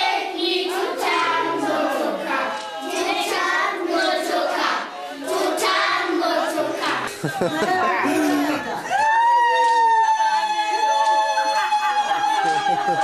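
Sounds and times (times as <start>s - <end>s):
children singing in chorus: 0.0s - 8.6s
hand claps: 12.2s - 13.0s.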